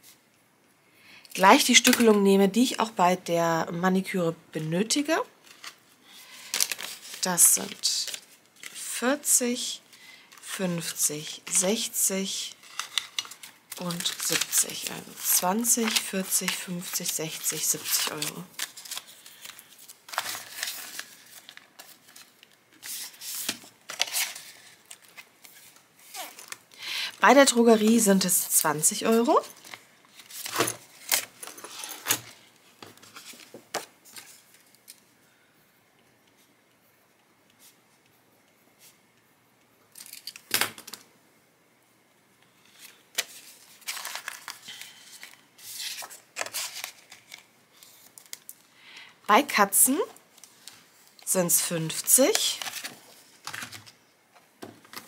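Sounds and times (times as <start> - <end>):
banknotes and plastic pocket crinkling: 5.4 - 8.9, 12.4 - 32.4, 42.7 - 48.7, 50.4 - 54.0
paper and plastic rustling: 5.4 - 8.9, 9.9 - 35.1, 42.6 - 48.7, 50.3 - 55.0.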